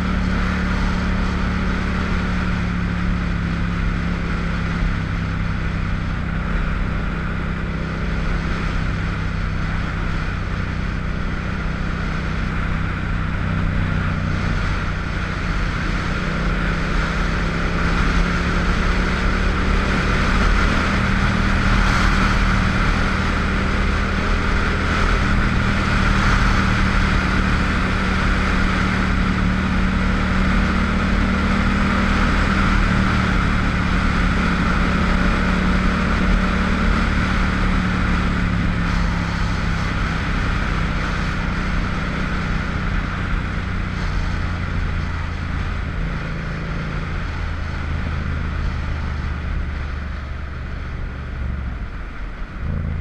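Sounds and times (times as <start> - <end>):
motorcycle engine running: 0.0 - 53.0
wind rushing over microphone: 0.0 - 53.0.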